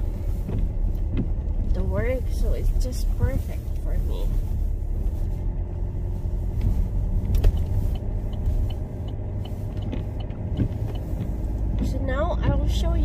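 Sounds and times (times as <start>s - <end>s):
car engine and tyres rumbling: 0.0s - 13.0s
light ticks: 6.6s - 13.0s.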